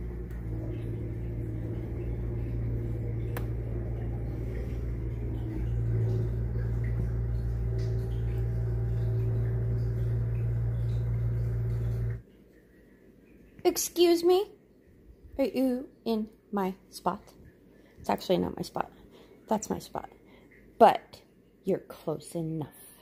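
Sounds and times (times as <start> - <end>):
diesel engine running: 0.0 - 12.2.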